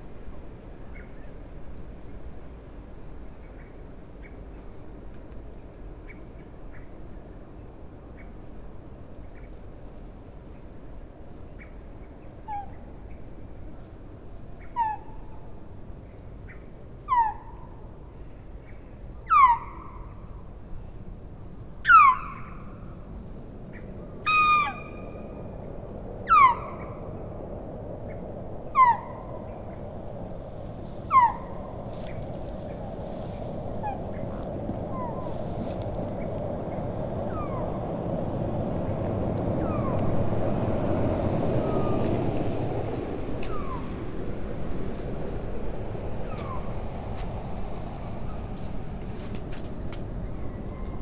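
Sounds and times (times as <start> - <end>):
faint steady rushing noise: 22.4 - 51.0
osprey whistling calls: 26.3 - 27.0.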